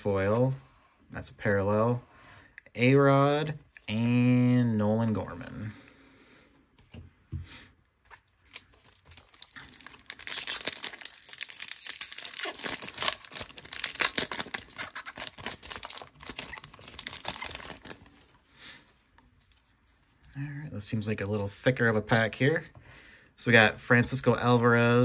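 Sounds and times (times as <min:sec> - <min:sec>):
foil wrapper tearing and crinkling: 0:08.2 - 0:18.3.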